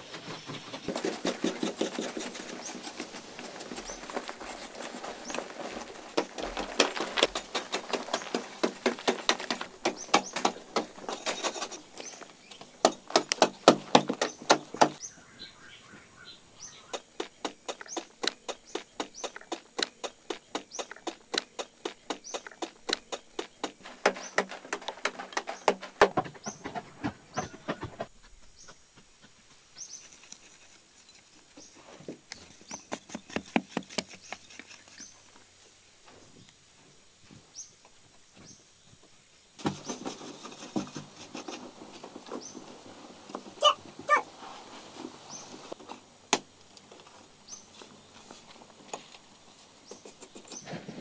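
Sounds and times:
digging tools striking hard clay: 0.9s - 15.0s, 16.9s - 26.3s, 32.4s - 35.1s.

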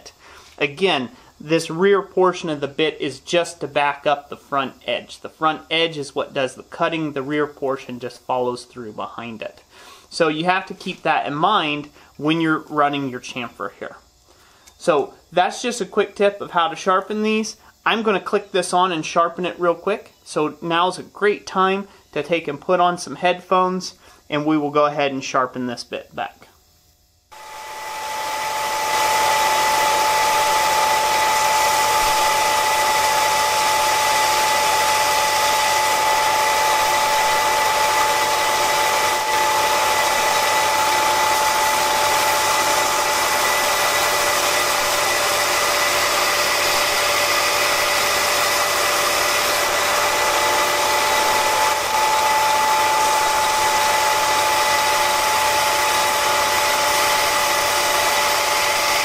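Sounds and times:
belt grinder whining: 27.3s - 59.0s
drill bit grinding on belt: 27.3s - 59.0s.

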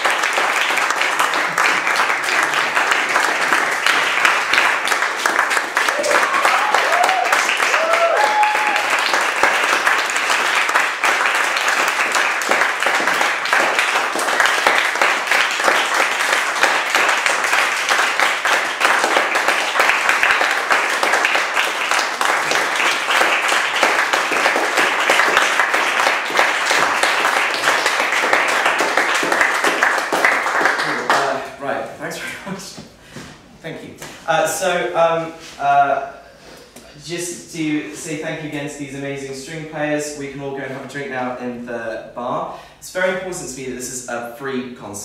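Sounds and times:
audience applauding: 0.0s - 31.4s.

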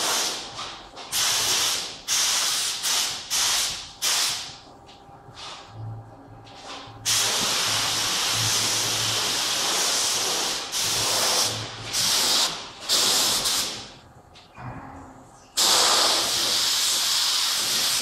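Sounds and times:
spray gun hissing: 1.1s - 4.5s, 7.1s - 13.9s, 15.6s - 18.0s.

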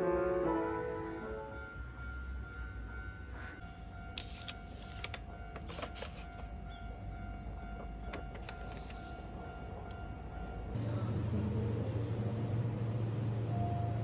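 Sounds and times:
paper menu pages turning: 4.2s - 6.5s, 8.4s - 9.2s.

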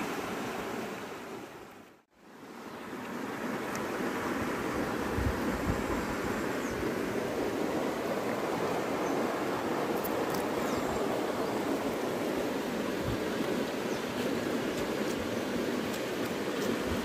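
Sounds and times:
creek water rushing: 0.0s - 17.0s.

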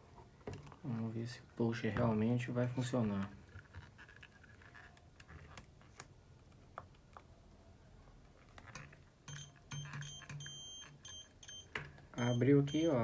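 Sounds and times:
multimeter beep: 9.3s - 13.0s.

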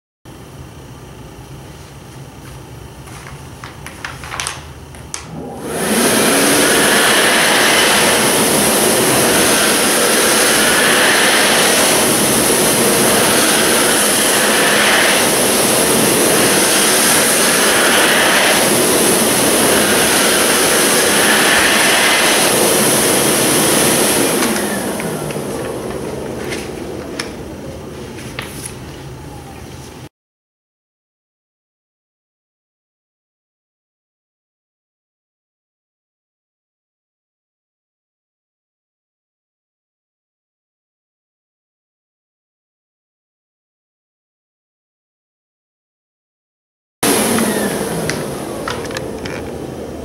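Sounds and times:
hand dryer blowing: 3.6s - 28.9s, 47.0s - 50.0s.

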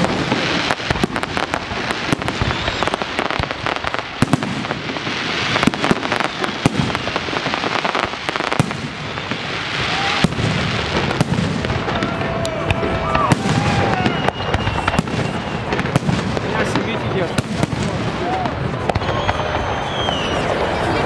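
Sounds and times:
continuous noisy din: 0.0s - 21.0s
fireworks bursting: 0.0s - 21.0s.

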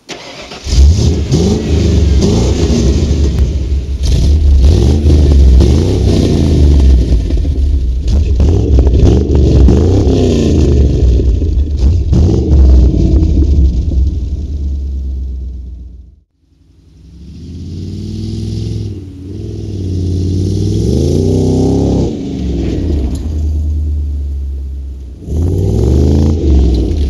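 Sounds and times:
engine revving loudly: 0.1s - 7.3s, 8.1s - 14.0s, 17.1s - 23.2s, 25.2s - 27.0s.

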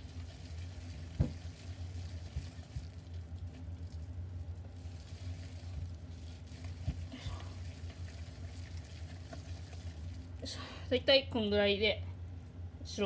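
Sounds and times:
wet squelching of meat paste: 0.0s - 10.4s
steady low hum: 0.0s - 13.0s.

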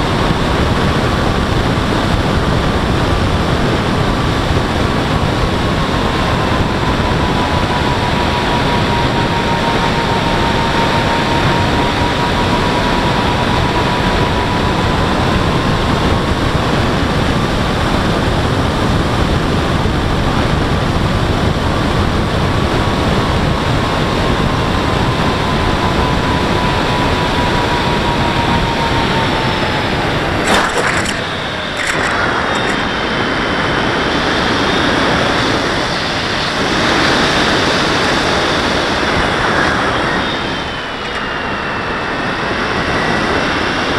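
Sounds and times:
wind and propeller noise: 0.0s - 43.9s
electric motor whine: 2.4s - 17.9s, 23.3s - 33.8s
sharp clicks: 30.4s - 32.9s.

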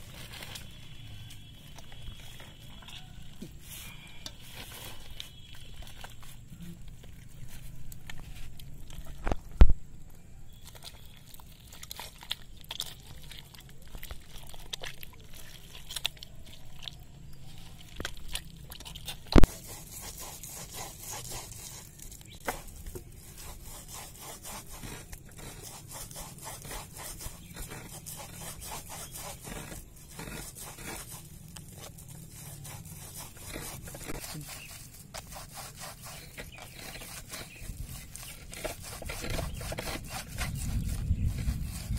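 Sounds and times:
fruit pulp scraping on mesh: 0.0s - 9.7s, 10.5s - 41.9s.

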